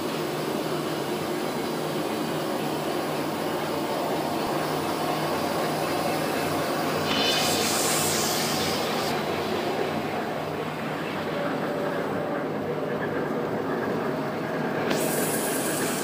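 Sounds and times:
paper machine rollers droning: 0.0s - 16.0s
bright hiss: 6.9s - 9.8s, 14.9s - 16.0s.

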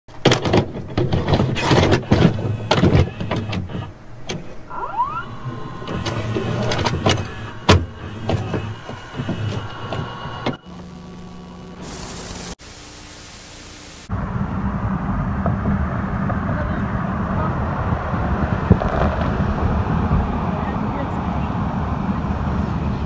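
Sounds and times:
mechanical clicks and clunks: 0.1s - 11.3s
motor whirring: 1.2s - 14.1s
rising whine: 4.6s - 20.5s.

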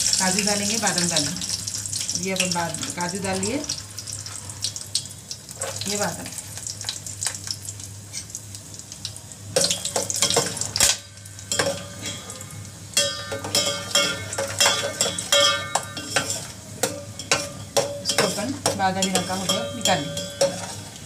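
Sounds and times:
nuts sizzling in a pot: 0.0s - 21.0s
spoon scraping metal pot: 13.0s - 16.5s, 17.2s - 20.9s.

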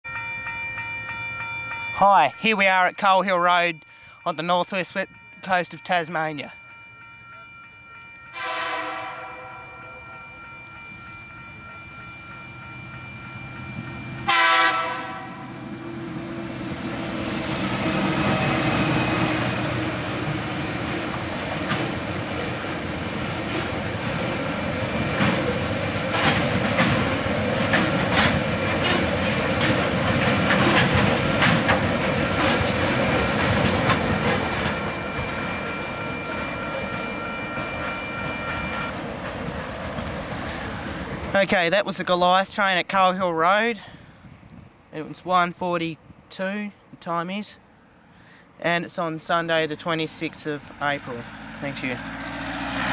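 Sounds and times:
level crossing warning bell: 0.0s - 39.6s
train horn blasts: 8.3s - 10.0s, 14.2s - 15.9s
wheels clacking over rail joints: 16.5s - 41.4s.

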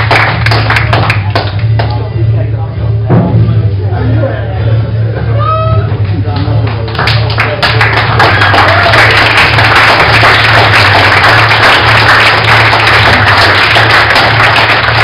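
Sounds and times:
audience applauding: 0.0s - 1.9s, 6.4s - 15.0s.

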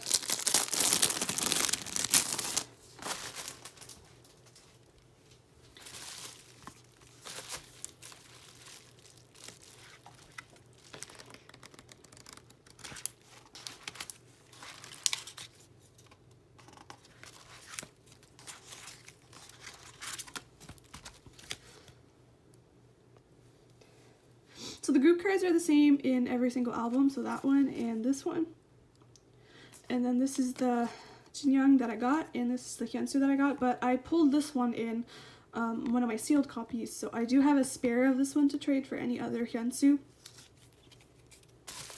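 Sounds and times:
paper pages rustling: 0.0s - 4.9s, 5.7s - 22.0s, 40.1s - 41.9s
plastic sleeve crinkling: 0.0s - 16.1s, 17.0s - 21.7s, 40.1s - 41.9s.

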